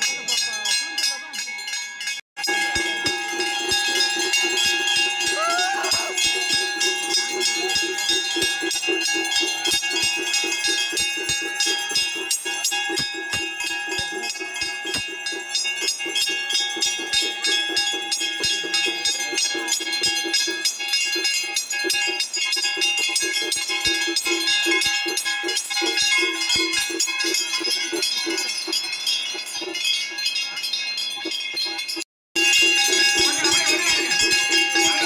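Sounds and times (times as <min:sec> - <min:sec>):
temple bells ringing: 0:00.0 - 0:35.0
crowd voices: 0:05.2 - 0:06.3, 0:32.9 - 0:35.0.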